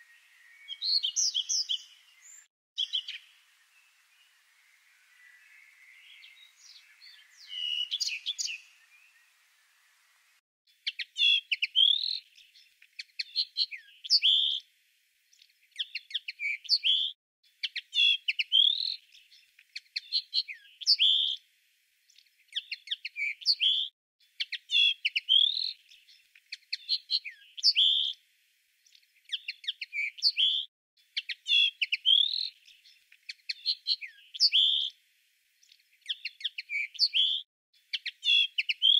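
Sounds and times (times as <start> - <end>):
bird call: 0.0 - 9.4
songbird singing chirps: 0.0 - 38.9.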